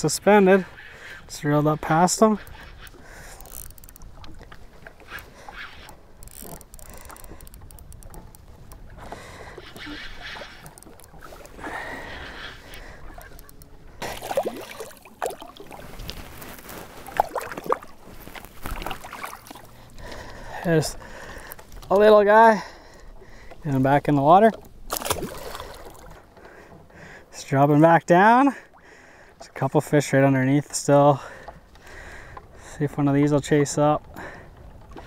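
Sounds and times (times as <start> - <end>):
water lapping against boat hull: 0.0 - 35.0
fishing reel clicking: 2.4 - 4.4, 5.6 - 8.8, 9.6 - 11.6
fish splashing in water: 14.0 - 16.2, 17.0 - 19.8, 24.9 - 26.1.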